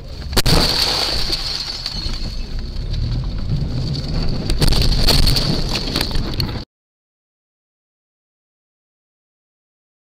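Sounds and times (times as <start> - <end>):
car road and wind noise: 0.0 - 6.6
knocks and rattles: 0.1 - 6.6.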